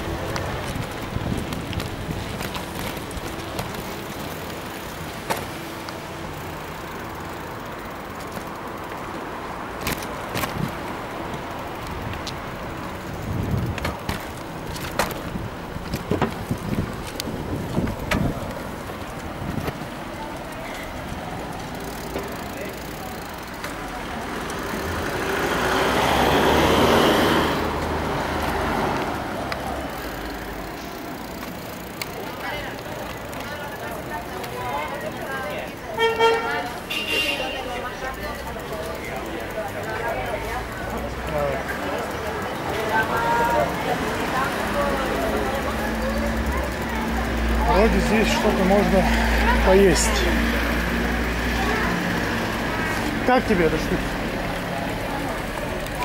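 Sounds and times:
street traffic hum: 0.0s - 56.0s
vehicle driving past: 24.2s - 30.6s.

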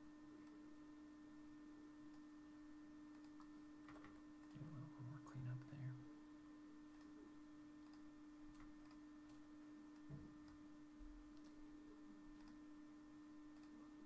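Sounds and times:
steady low hum: 0.0s - 14.0s
faint clicks: 7.8s - 10.6s.

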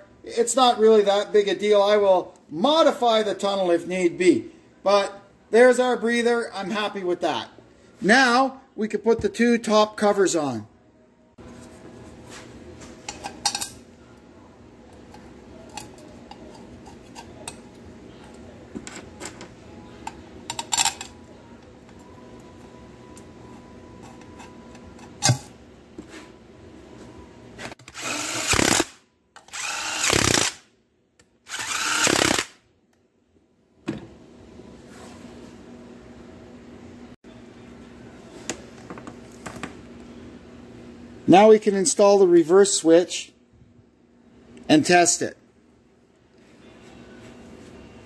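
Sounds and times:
cordless power driver running: 27.9s - 28.9s, 31.5s - 32.5s.

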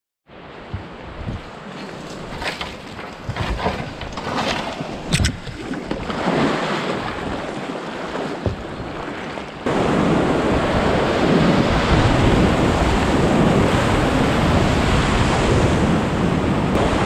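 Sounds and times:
water washing along hull: 0.3s - 17.0s
paddle strokes: 0.6s - 9.7s
kayak knocks and splashes: 0.7s - 9.6s
wind buffeting microphone: 0.7s - 17.0s.

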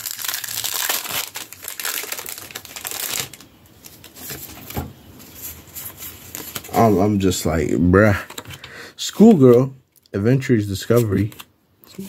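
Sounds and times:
foil wrapper crinkling: 0.0s - 4.4s.

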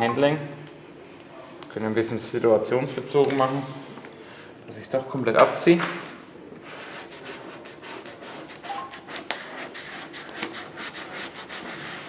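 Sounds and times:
dry rubbing on car paint: 6.6s - 12.0s.

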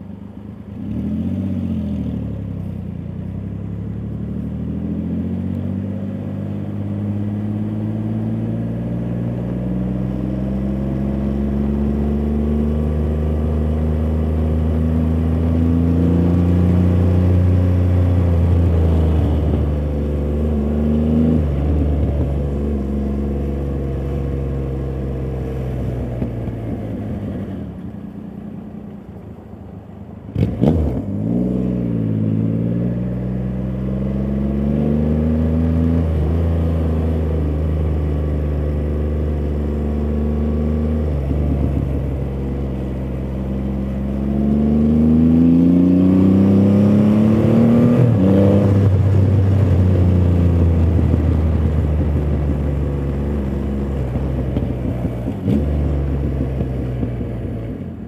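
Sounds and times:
motorcycle engine revving: 0.7s - 27.8s, 30.3s - 58.0s.

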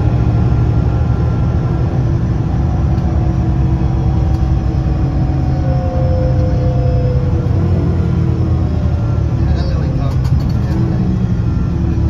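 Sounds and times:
bus engine rumble: 0.0s - 12.0s
gear whine: 0.0s - 12.0s.

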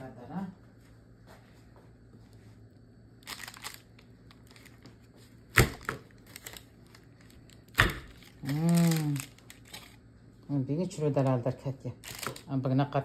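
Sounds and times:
chocolate slab cracking: 5.4s - 10.0s, 12.0s - 12.5s.

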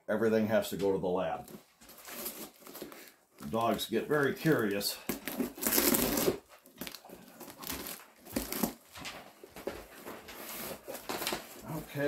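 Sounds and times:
tape and cardboard crinkling: 1.4s - 12.0s
knife slitting packing tape: 5.3s - 6.4s.

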